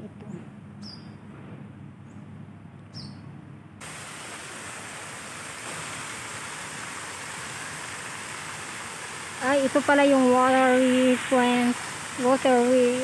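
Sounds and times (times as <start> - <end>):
bird chirp: 0.3 - 1.2, 2.9 - 3.3
fountains spraying and splashing: 3.8 - 13.0.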